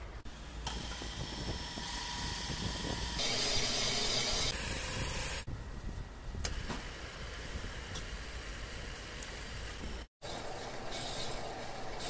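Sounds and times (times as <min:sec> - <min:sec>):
boring machine hissing: 0:00.3 - 0:05.5.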